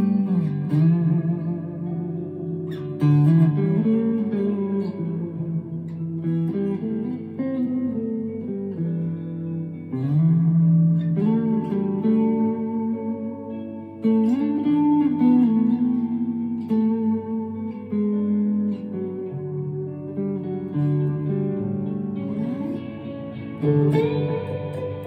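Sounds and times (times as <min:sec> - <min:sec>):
electric guitar played slowly: 0:00.0 - 0:25.0
guitar note bends: 0:00.0 - 0:25.0.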